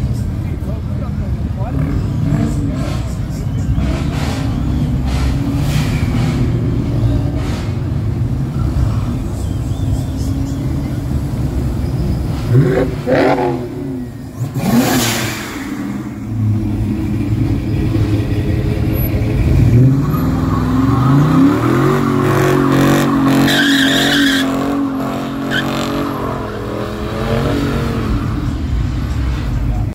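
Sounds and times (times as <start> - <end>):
car engine revving: 0.1 - 29.9
tyres squealing in a burnout: 17.4 - 28.6.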